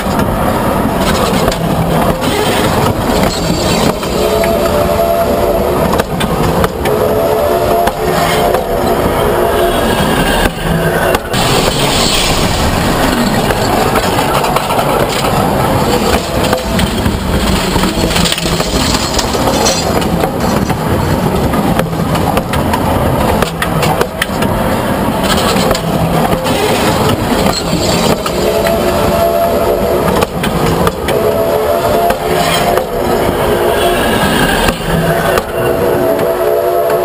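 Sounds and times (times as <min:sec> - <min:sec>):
steel wheels rumbling on rails: 0:00.0 - 0:37.0
wheel sets clicking and clattering: 0:11.4 - 0:24.5, 0:25.2 - 0:28.8.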